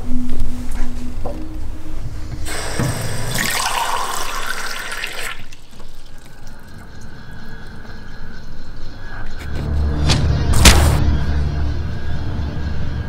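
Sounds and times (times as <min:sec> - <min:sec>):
tap water running into cup: 0:02.5 - 0:06.9.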